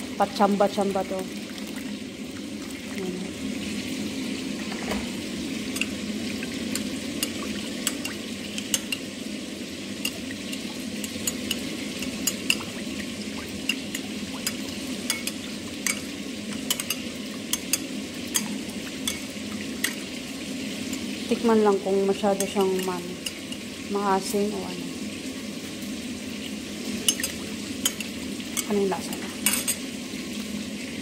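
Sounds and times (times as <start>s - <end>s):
steady background hum: 0.0s - 31.0s
spoon clinking against glass bowl: 7.2s - 9.1s, 13.6s - 20.0s, 27.1s - 28.8s, 29.4s - 29.8s.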